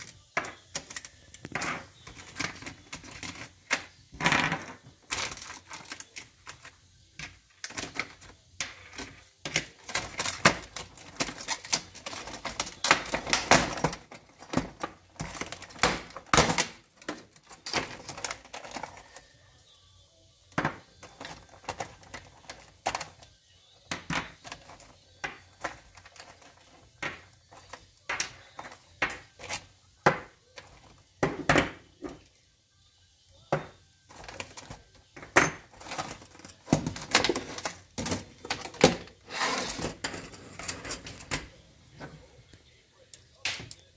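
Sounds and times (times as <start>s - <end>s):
plastic packaging crackling: 0.0s - 19.4s, 34.0s - 41.6s.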